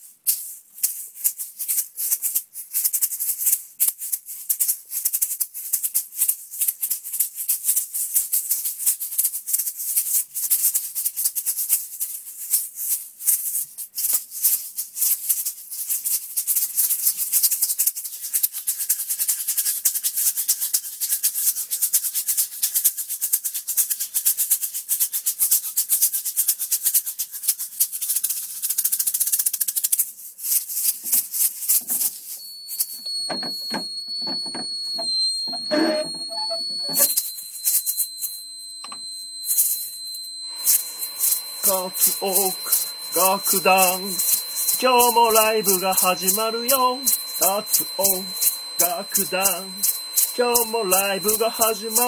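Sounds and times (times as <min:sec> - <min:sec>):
shaker rattling rhythmically: 0:00.0 - 0:52.0
steady high-pitched tone: 0:32.4 - 0:52.0.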